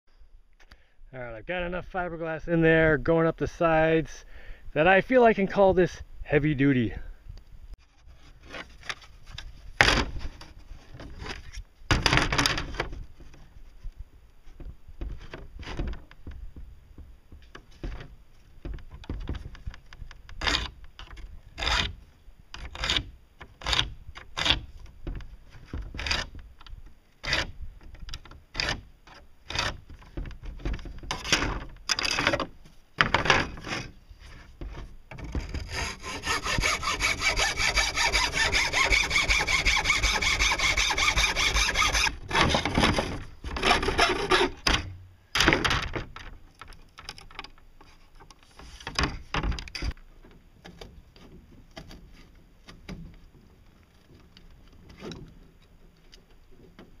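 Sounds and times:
hacksaw cutting fiberglass: 35.4 - 44.8.

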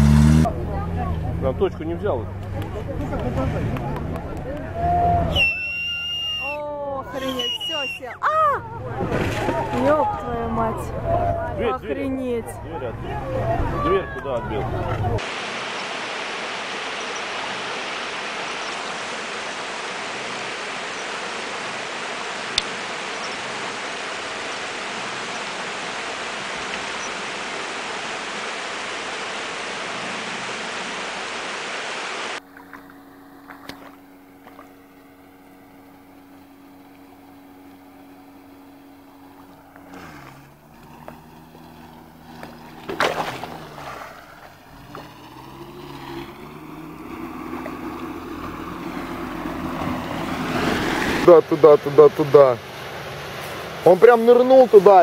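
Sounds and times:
car engine running: 0.0 - 15.8, 32.4 - 55.0
water rushing over rocks: 15.0 - 32.4, 42.0 - 45.2, 46.1 - 55.0.

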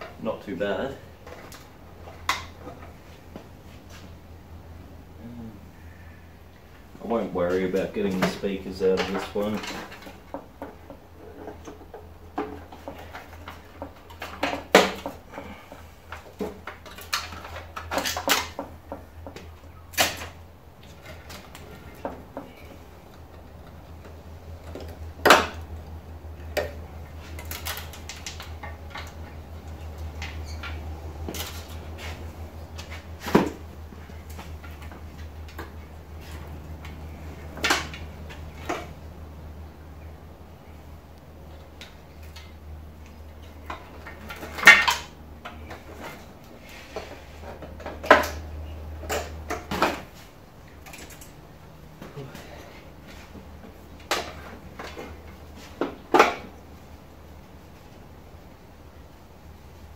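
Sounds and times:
steady low hum: 0.0 - 59.9
clicks knocks and rattles of hand work: 7.1 - 39.1, 41.4 - 56.9.

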